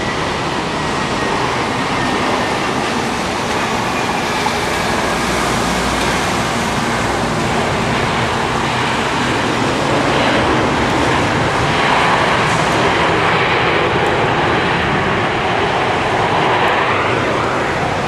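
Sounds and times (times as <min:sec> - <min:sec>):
jet engines roaring: 0:00.0 - 0:18.0.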